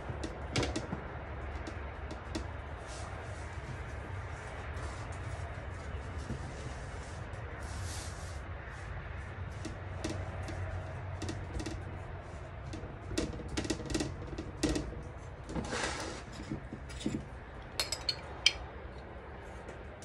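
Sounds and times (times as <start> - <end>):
rustling scrape: 2.8 - 9.6, 15.6 - 18.6
spoon clinking glass jar: 17.8 - 18.6.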